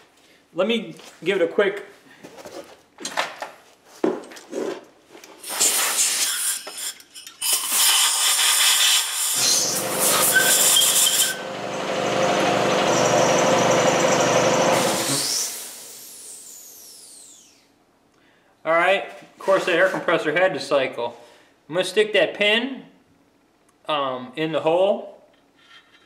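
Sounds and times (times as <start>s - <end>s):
air blow gun hissing: 5.4s - 11.6s, 12.3s - 17.5s
air compressor motor hum: 9.4s - 17.7s.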